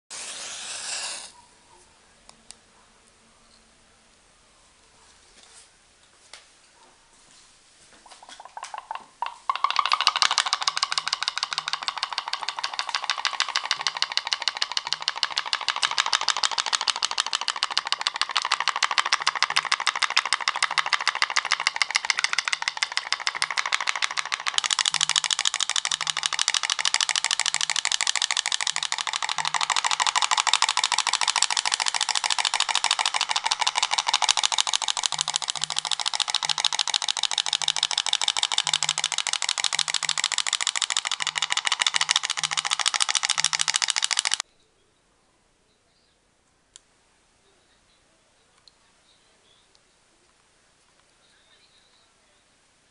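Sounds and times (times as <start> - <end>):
pop-pop boat boiler rattling: 8.4 - 44.4.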